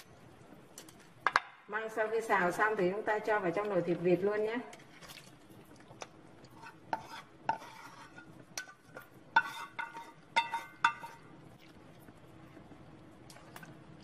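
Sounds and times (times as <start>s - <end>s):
metal spatula scraping frying pan: 6.5s - 11.3s.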